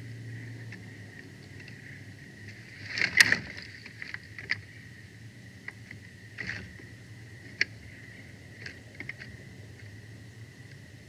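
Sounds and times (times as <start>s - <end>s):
faint high hum: 0.0s - 11.0s.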